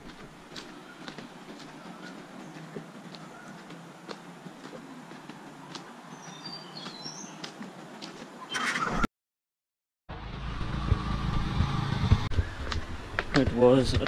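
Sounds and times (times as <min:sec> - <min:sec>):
low rumble: 0:10.1 - 0:13.3.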